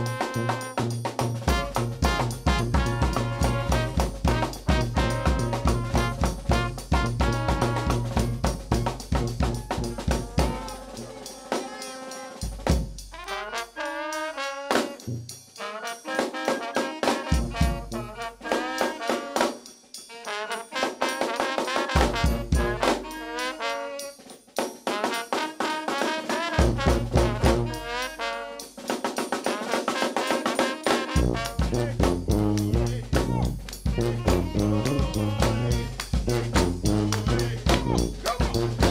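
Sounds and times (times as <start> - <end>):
snare and bass drum: 0.0 - 13.6, 16.2 - 19.6, 21.0 - 23.7, 24.6 - 38.9
saxophone: 0.0 - 24.3, 25.0 - 28.8, 29.5 - 38.9
trombone: 0.0 - 38.9
trumpet: 0.0 - 38.9
sousaphone bass: 1.5 - 11.1, 31.2 - 38.9.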